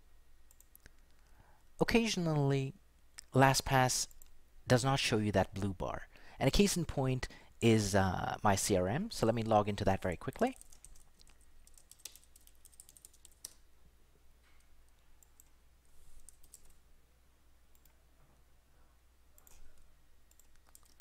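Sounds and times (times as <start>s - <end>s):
keyboard typing: 10.3s - 13.6s, 16.2s - 16.8s, 19.4s - 21.0s.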